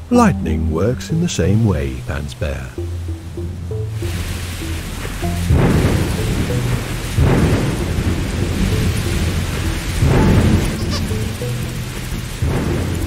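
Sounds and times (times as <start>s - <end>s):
heavy rain: 1.7s - 13.0s
thunder claps: 4.0s - 13.0s.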